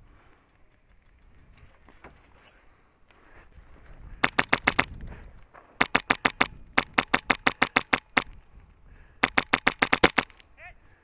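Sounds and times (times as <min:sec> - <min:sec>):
airsoft rifle shots: 0:04.2 - 0:04.9, 0:05.8 - 0:08.4, 0:09.2 - 0:10.4.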